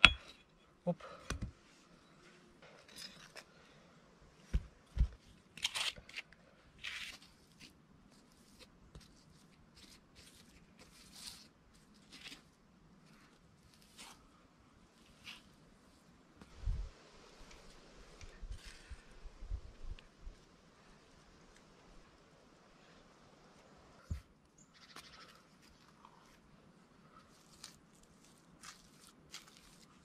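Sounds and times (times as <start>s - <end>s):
gritty scraping and rustling: 27.1s - 30.0s.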